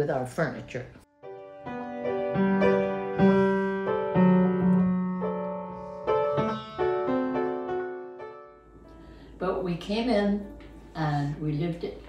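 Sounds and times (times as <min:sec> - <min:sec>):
solo piano melody: 0:01.0 - 0:09.7.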